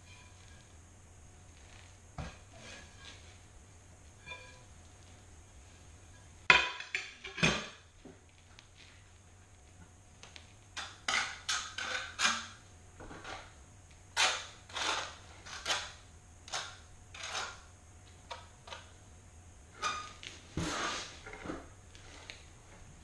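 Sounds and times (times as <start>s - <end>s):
trowel scraping mortar on tile: 11.1s - 12.6s, 14.2s - 16.0s, 16.6s - 17.6s, 19.8s - 22.4s.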